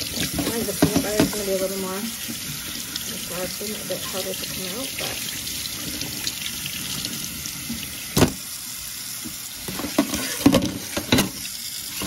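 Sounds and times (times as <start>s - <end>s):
tap running into metal sink: 0.0s - 2.4s, 7.7s - 8.5s.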